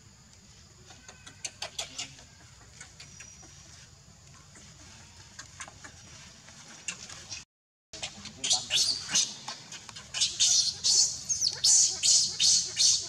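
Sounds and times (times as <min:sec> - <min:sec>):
baby monkey squeaking cries: 0:10.1 - 0:13.0.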